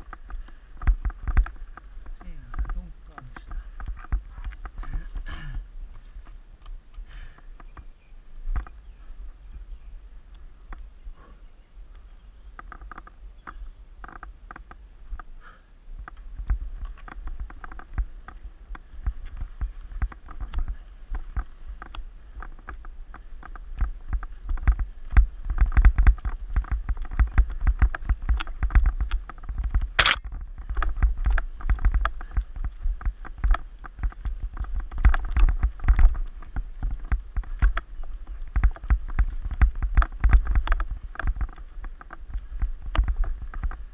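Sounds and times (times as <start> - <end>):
mountain bike rattling over rocks: 0.0 - 6.2, 16.0 - 43.9
sharp crack: 30.0 - 30.3.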